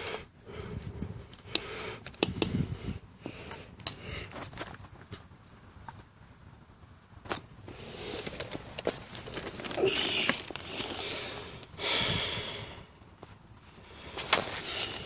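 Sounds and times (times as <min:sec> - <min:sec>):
rustling and handling noise: 0:07.2 - 0:11.8, 0:13.1 - 0:15.0.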